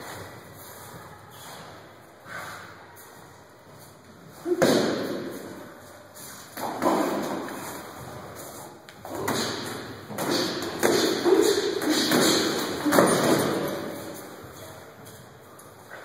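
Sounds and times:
ringing echo in large hall: 0:00.0 - 0:16.0.

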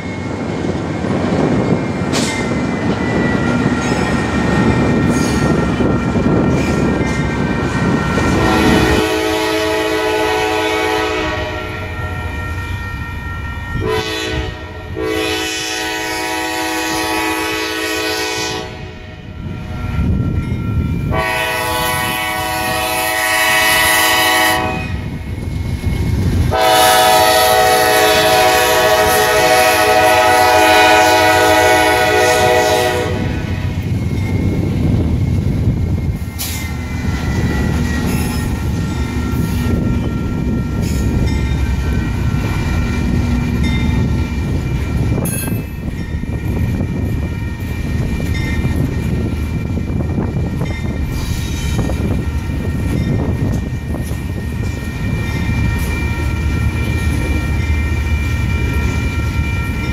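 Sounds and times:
freight train cars rumbling: 0:00.0 - 0:59.9
locomotive air horn blasts: 0:07.8 - 0:12.6, 0:13.7 - 0:19.1, 0:21.1 - 0:25.0, 0:26.5 - 0:33.6.

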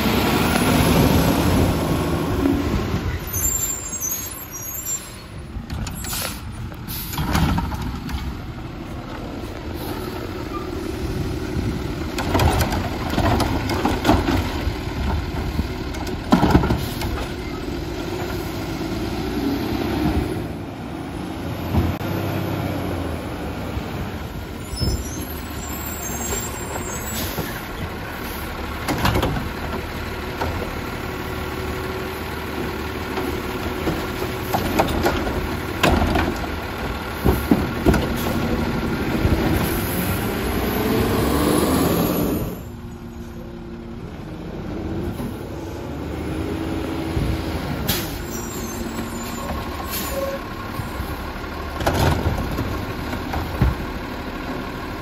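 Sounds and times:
garbage truck running: 0:00.0 - 0:55.0.

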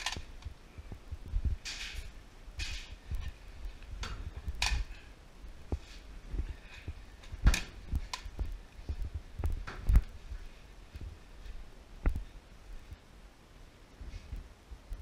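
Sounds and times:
footsteps: 0:05.6 - 0:12.3.

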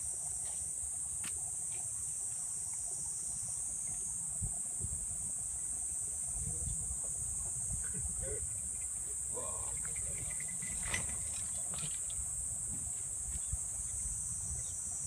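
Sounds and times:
insect chorus buzzing: 0:00.0 - 0:15.0
wind rumble on microphone: 0:04.3 - 0:05.4, 0:06.1 - 0:15.0.

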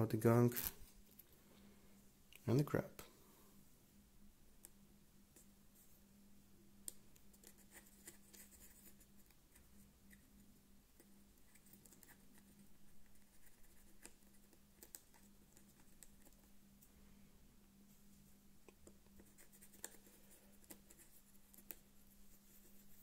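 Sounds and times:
faint low hum: 0:00.0 - 0:23.0
toothpick scratching and clicking: 0:11.5 - 0:16.4.

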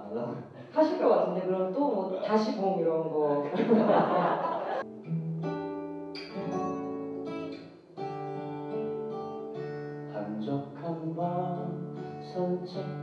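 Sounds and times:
acoustic guitar chords: 0:03.8 - 0:13.0.

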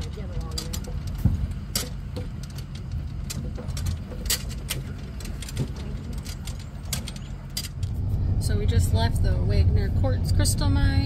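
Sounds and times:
clicks and rattles from bumps: 0:00.0 - 0:08.0
vehicle engine rumble: 0:00.0 - 0:11.0.

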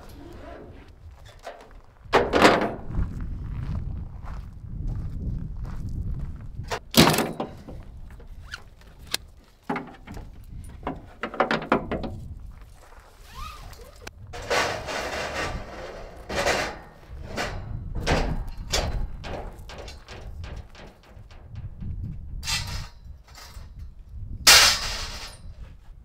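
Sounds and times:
metal scraping: 0:00.0 - 0:01.7, 0:13.2 - 0:23.9
metal frames clanking: 0:00.0 - 0:02.9, 0:06.7 - 0:08.4, 0:09.6 - 0:12.3, 0:14.3 - 0:25.6.

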